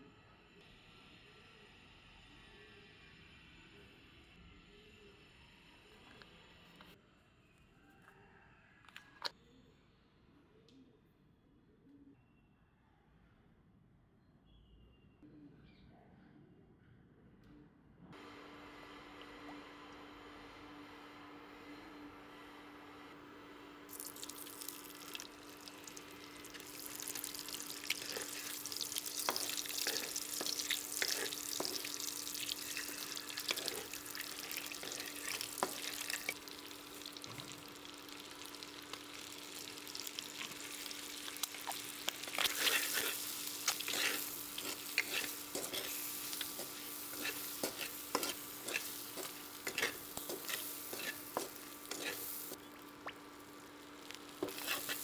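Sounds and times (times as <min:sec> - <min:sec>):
eggs sizzling in hot oil: 0:23.9 - 0:55.0
spatula scraping pan: 0:24.0 - 0:52.6, 0:54.0 - 0:55.0.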